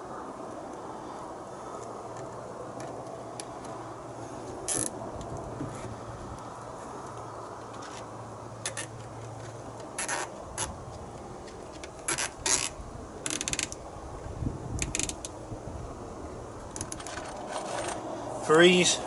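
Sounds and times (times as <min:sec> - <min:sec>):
strap ratchet clicks: 0:12.1 - 0:13.8, 0:14.8 - 0:15.3.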